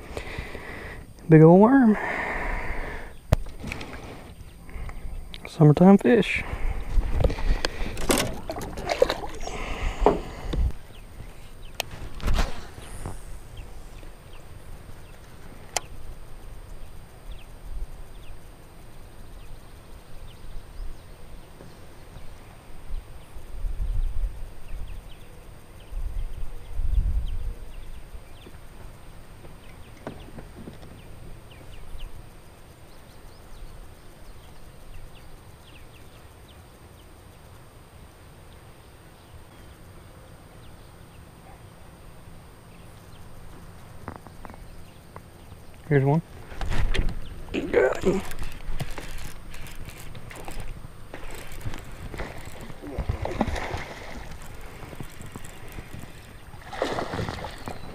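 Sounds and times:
steady low hum: 0:00.0 - 0:57.9
wind rumble on microphone: 0:06.4 - 0:15.1, 0:22.2 - 0:28.8
fishing reel cranking: 0:48.0 - 0:52.8, 0:54.3 - 0:56.4.

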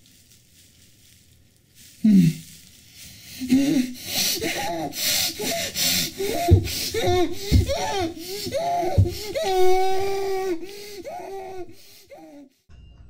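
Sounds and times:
person moaning and crying: 0:02.0 - 0:02.6, 0:03.2 - 0:12.5.

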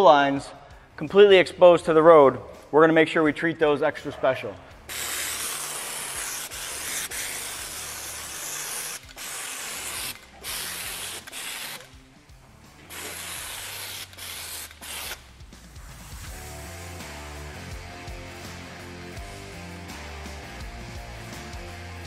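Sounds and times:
air spray wand hissing: 0:04.8 - 0:12.0, 0:12.8 - 0:16.3.

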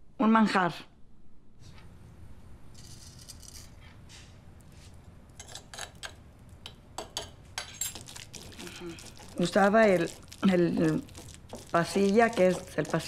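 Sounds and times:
spoon scraping stone bowl: 0:05.4 - 0:06.2, 0:07.6 - 0:13.0
stone pestle grinding in mortar: 0:07.9 - 0:13.0.

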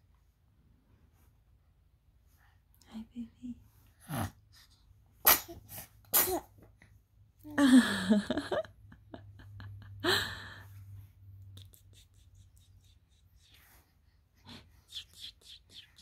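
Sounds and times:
baby sneezing: 0:05.2 - 0:06.6.

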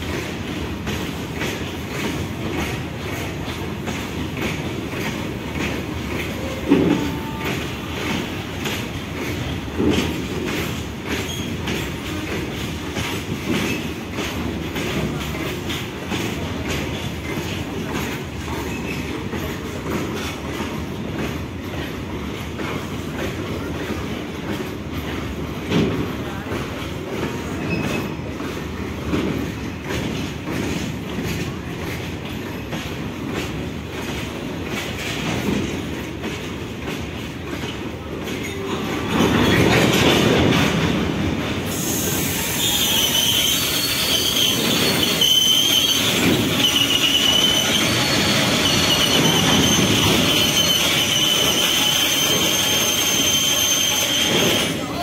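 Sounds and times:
wheels clacking over rail joints: 0:00.0 - 0:41.8, 0:42.7 - 0:55.0
freight train rumbling past: 0:00.0 - 0:55.0
high wavering wheel squeal: 0:42.0 - 0:54.8.

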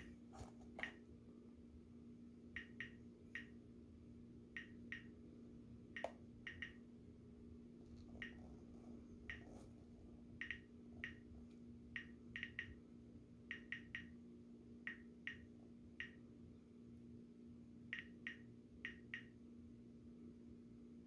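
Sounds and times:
faint steady hum: 0:00.0 - 0:21.0
geiger counter clicking: 0:02.6 - 0:03.6, 0:04.6 - 0:05.1, 0:05.9 - 0:06.8, 0:08.2 - 0:08.4, 0:10.4 - 0:11.3, 0:11.9 - 0:12.8, 0:13.5 - 0:14.2, 0:14.8 - 0:16.2, 0:17.9 - 0:19.3.

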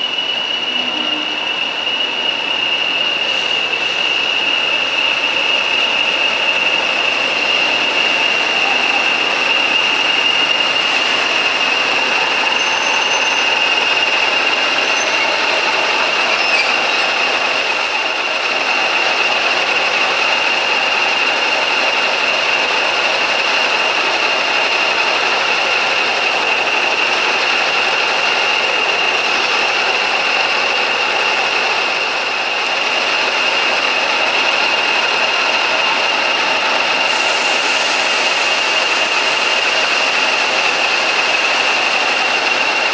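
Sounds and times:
turbocharger high whistle: 0:00.0 - 0:04.6, 0:07.8 - 0:16.8
diesel locomotive idling: 0:00.0 - 0:42.9.

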